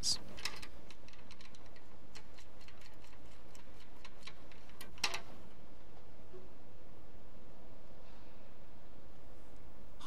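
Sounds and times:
steady background hiss: 0.0 - 10.0
small metal clicks and taps: 0.4 - 5.2.

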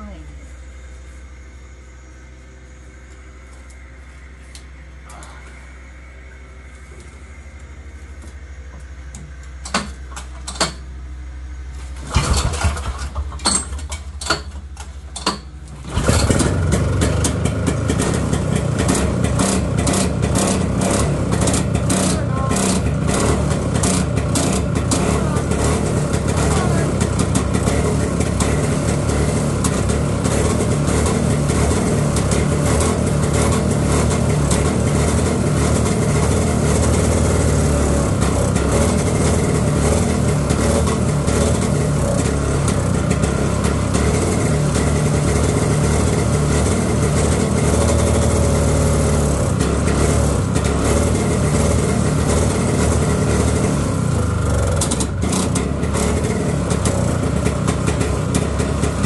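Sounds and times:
snowmobile engine running: 15.8 - 59.0.

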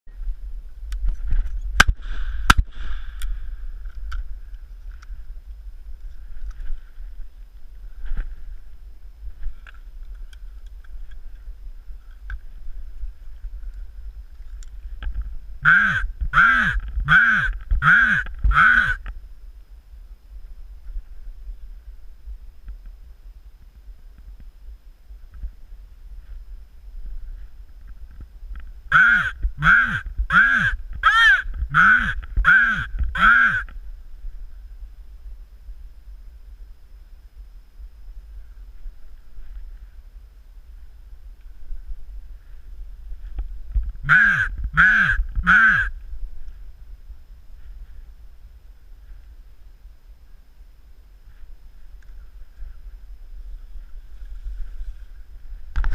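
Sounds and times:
wind rumble on microphone: 0.1 - 50.3
raven cawing: 15.6 - 19.1, 28.9 - 33.8, 44.0 - 46.0.

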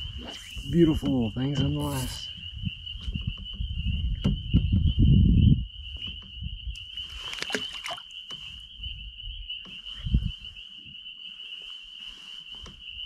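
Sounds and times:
high-pitched insect drone: 0.0 - 13.0
low knock against boat: 3.0 - 4.9
water splashing: 7.2 - 8.1.

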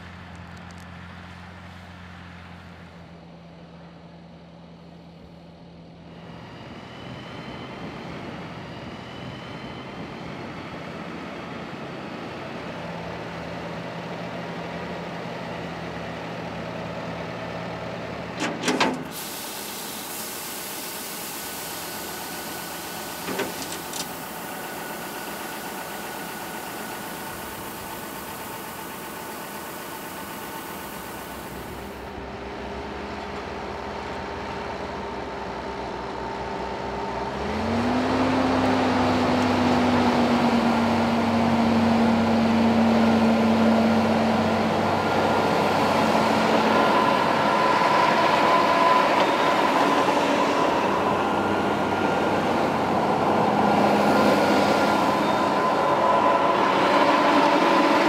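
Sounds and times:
tractor diesel engines running: 0.0 - 58.0.

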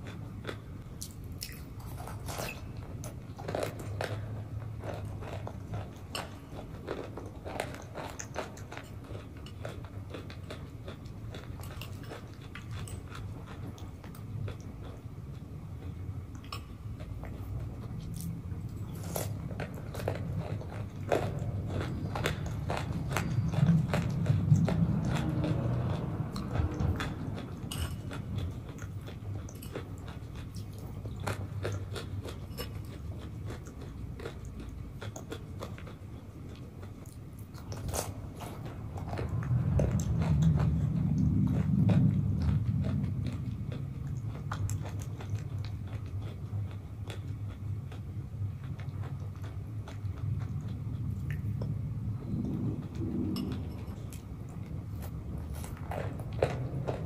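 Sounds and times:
chewing and swallowing: 0.0 - 57.0.

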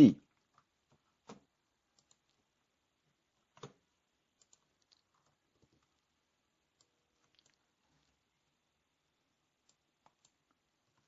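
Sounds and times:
mouse and keyboard clicks: 0.4 - 2.4, 3.5 - 3.8, 4.4 - 6.0.

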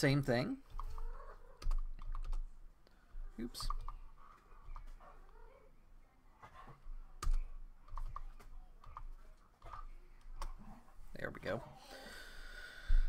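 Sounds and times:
computer keyboard typing: 0.6 - 2.5, 3.5 - 5.4, 7.2 - 9.8.

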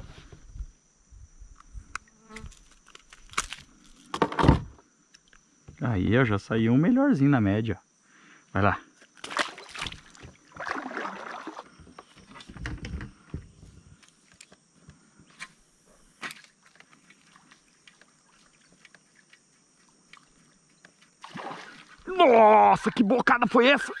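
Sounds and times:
paddle strokes splashing water: 9.2 - 11.8, 16.4 - 22.1.

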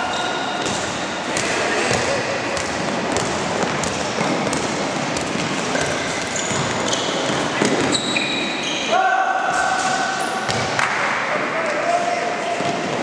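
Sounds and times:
sneaker squeaks: 0.0 - 10.7
basketball dribbling on wood court: 0.6 - 8.0, 10.5 - 10.7.

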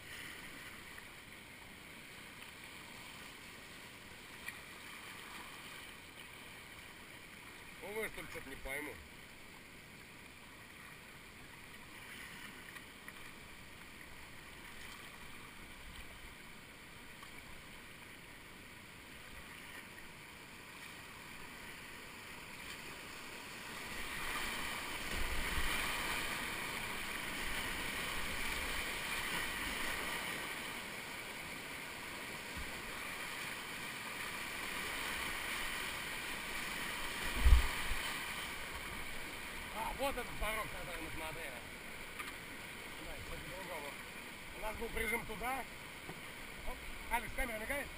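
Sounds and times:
whitewater rushing: 21.1 - 42.1.

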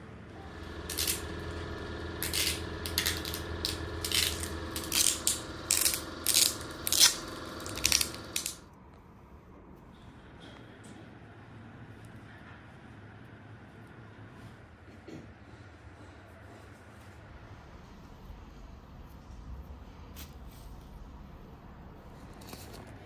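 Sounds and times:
steady machine hum: 0.0 - 8.8.

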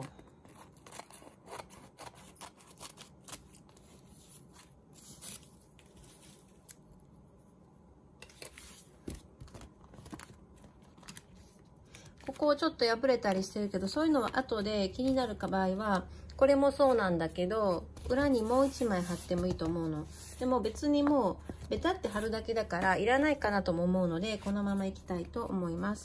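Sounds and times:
scissors snipping paper: 0.1 - 3.8.

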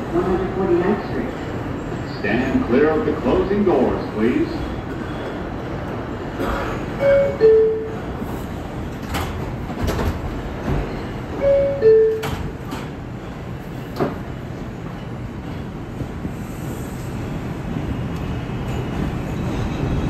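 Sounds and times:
train hum: 0.0 - 20.0
two-note door chime: 11.4 - 12.4.

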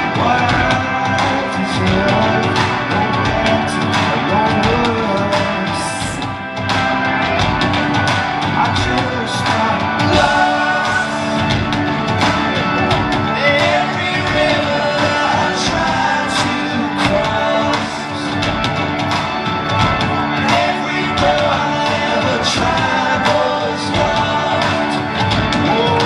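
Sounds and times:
man singing lead vocal: 0.0 - 6.5, 8.5 - 11.7, 13.2 - 18.8, 20.2 - 26.0
live rock band playing: 0.0 - 26.0.

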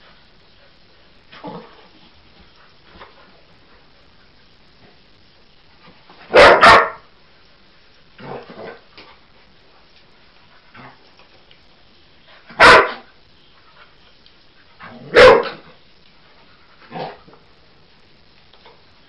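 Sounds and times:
dog barking: 6.3 - 7.0, 12.5 - 13.1, 15.1 - 15.6.

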